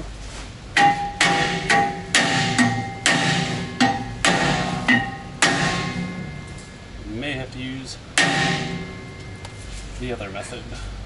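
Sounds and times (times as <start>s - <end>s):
hammer striking metal rotor: 0.8s - 6.8s, 8.2s - 9.6s.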